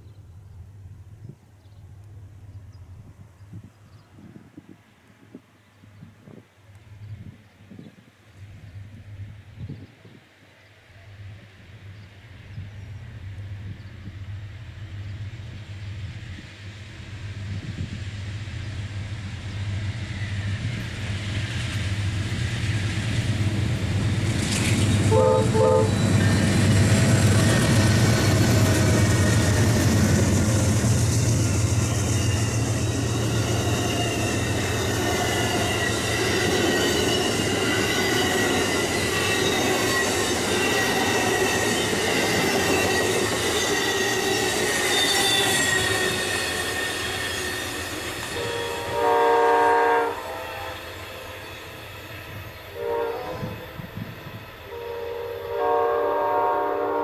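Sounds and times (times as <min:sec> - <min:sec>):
diesel locomotive drone: 0:00.0 - 0:57.0
train cars rolling past: 0:08.2 - 0:57.0
locomotive horn: 0:25.0 - 0:26.1, 0:48.3 - 0:51.3, 0:52.8 - 0:53.8, 0:54.7 - 0:57.0
high squealing tones: 0:25.8 - 0:48.4.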